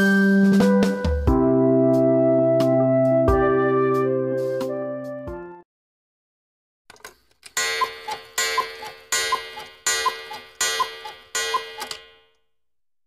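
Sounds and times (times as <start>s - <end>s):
ringing clock chime: 7.6s - 12.3s.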